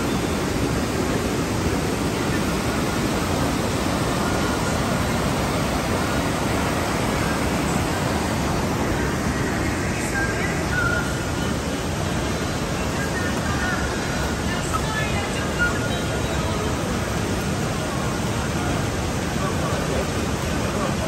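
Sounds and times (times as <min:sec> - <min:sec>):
river rushing over boulders: 0:00.0 - 0:21.0.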